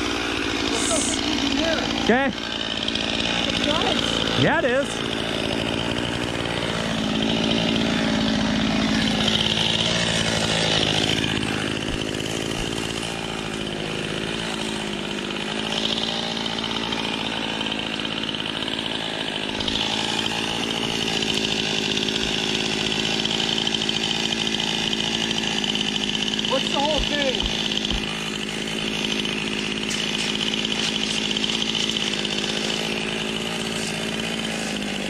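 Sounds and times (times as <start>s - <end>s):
chainsaw revving: 0.0s - 35.0s.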